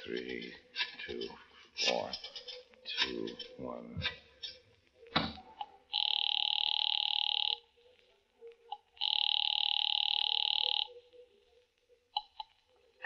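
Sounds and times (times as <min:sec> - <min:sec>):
telephone bell ringing: 0:05.9 - 0:07.6, 0:09.0 - 0:10.9.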